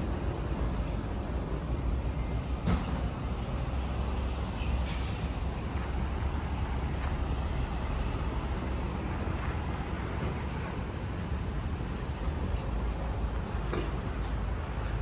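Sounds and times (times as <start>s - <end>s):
city traffic drone: 0.0s - 15.0s.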